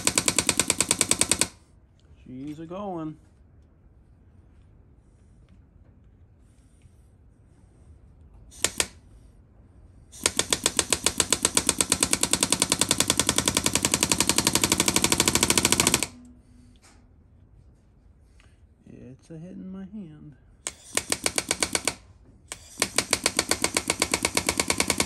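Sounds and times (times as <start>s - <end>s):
power hammer rattling: 0.0s - 1.6s, 10.2s - 16.2s, 20.7s - 25.0s.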